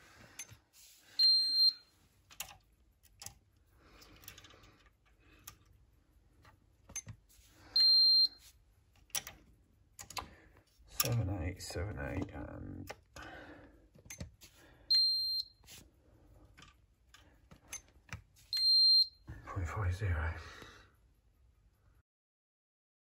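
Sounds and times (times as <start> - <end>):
tester beeping: 7.8 - 8.4
clicks and knocks of handling: 8.9 - 13.3, 13.9 - 14.5, 16.5 - 18.4.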